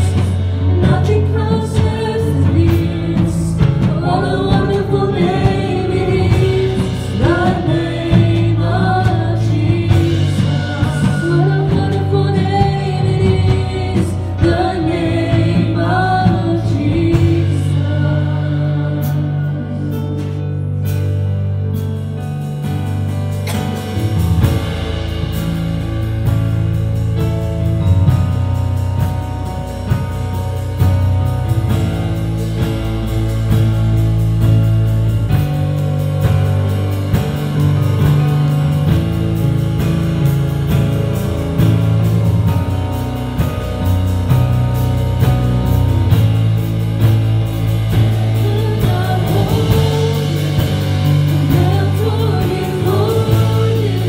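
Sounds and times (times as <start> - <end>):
woman singing: 0.0 - 20.2, 48.3 - 54.0
low keyboard notes: 0.0 - 54.0.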